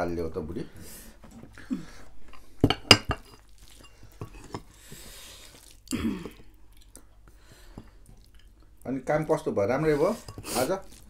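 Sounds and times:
handling and eating sounds: 1.2 - 8.8, 9.8 - 11.0.

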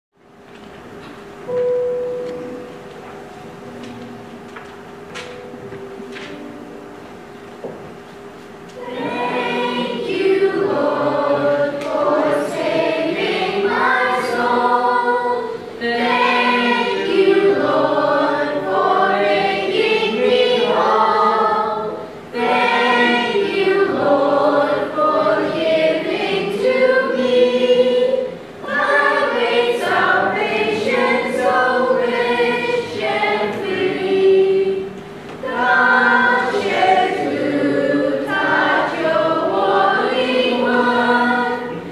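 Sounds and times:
children's choir singing: 8.6 - 41.9.

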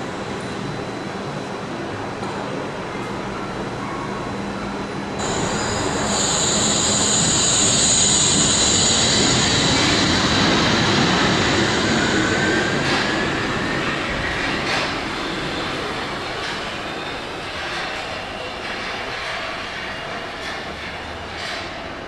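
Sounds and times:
high whine: 5.2 - 17.0
steel wheels rumbling on rail: 5.2 - 22.0.

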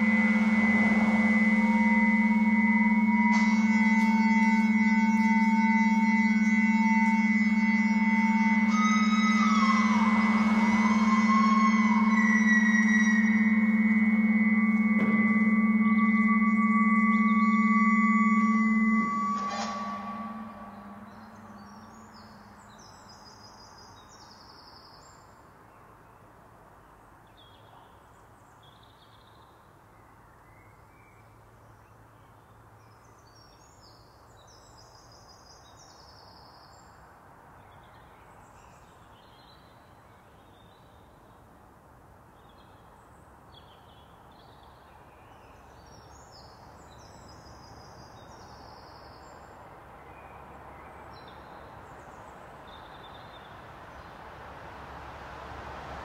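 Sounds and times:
brief high bird calls: 0.0 - 22.6
low ringing tone: 0.0 - 22.9
songbird singing: 0.0 - 26.0
low rumble of road traffic: 0.0 - 56.0.

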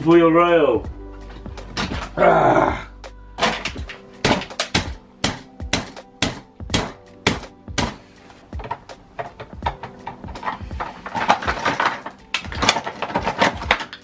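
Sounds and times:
metal clicks and knocks: 3.4 - 6.0, 8.6 - 14.0.

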